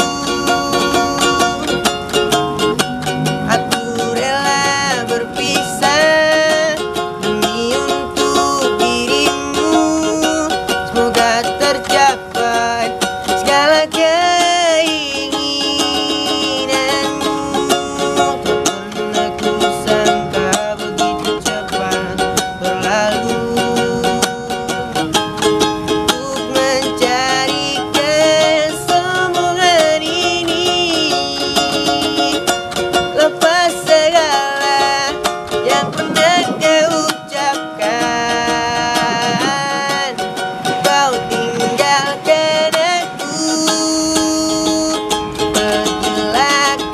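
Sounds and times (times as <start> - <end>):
man singing pop ballad: 0.0 - 1.8, 3.5 - 24.8, 26.1 - 32.5, 33.2 - 40.2, 40.8 - 46.9
ukulele strumming: 0.0 - 46.9.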